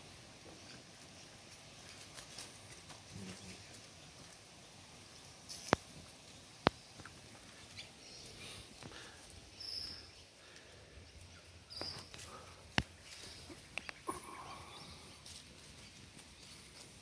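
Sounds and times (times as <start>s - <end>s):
puppies growling: 14.0s - 15.4s.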